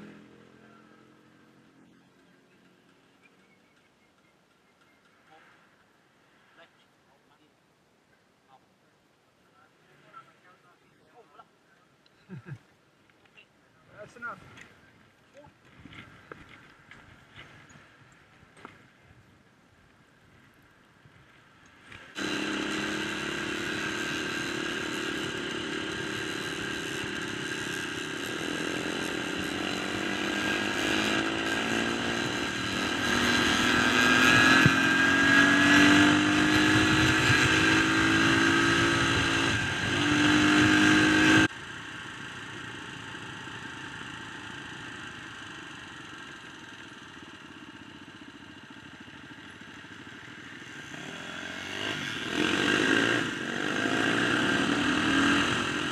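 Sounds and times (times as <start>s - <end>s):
quieter steady engine: 0.0s - 7.5s, 9.5s - 55.9s
dirt bike engine revving: 21.9s - 41.5s, 49.5s - 55.9s.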